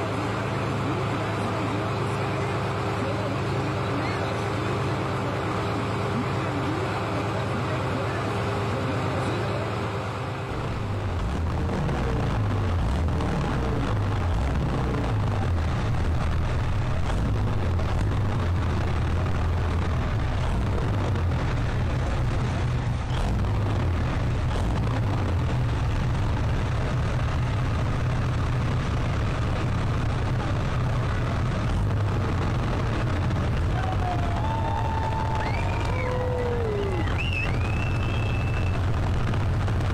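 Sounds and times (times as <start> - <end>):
diesel engine revving: 0.0 - 39.9.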